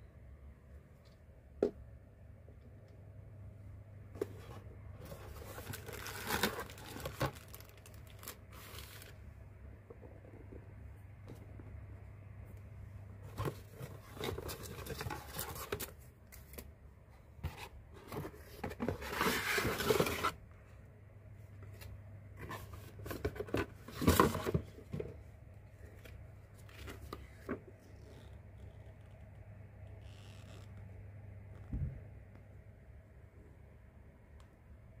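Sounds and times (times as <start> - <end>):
low steady hum: 0.0 - 35.0
cardboard and paper rustling: 4.2 - 9.2, 13.2 - 16.7, 17.4 - 20.4, 21.7 - 25.2, 25.8 - 27.8.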